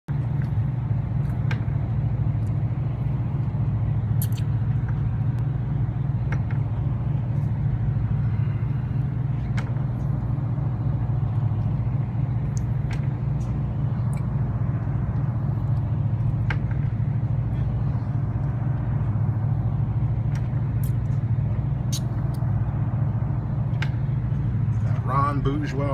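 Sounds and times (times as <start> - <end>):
boat engine idling: 0.1 - 25.9.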